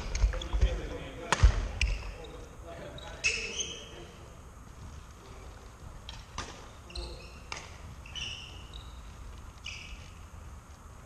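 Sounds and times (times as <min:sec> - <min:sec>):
shoes squeaking on wooden floor: 0:01.6 - 0:10.5
racket hitting shuttlecock: 0:07.4 - 0:07.9.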